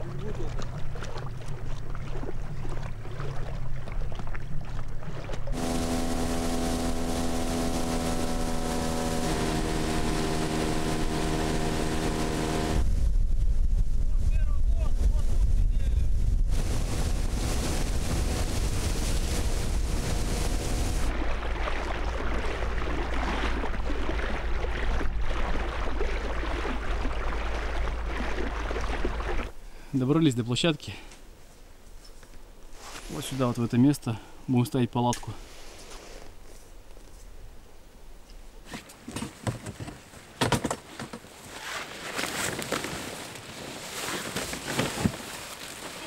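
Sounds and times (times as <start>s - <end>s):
water splashing against hull: 0.0s - 13.3s, 16.3s - 29.6s
outboard motor drone: 0.5s - 13.2s, 16.4s - 29.6s
knocks of camping gear: 39.1s - 41.2s
rustling: 40.8s - 46.0s.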